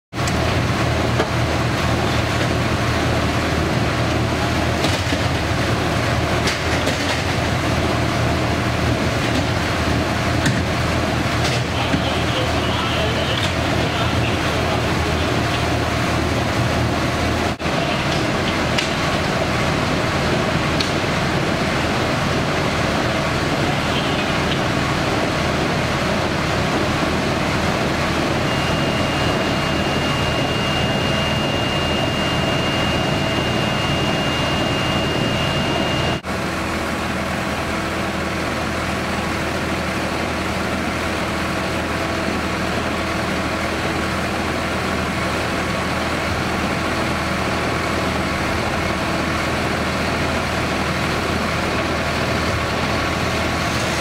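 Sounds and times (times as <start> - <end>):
diesel engines idling: 0.2 - 54.0
thin high steady tone: 28.4 - 36.2.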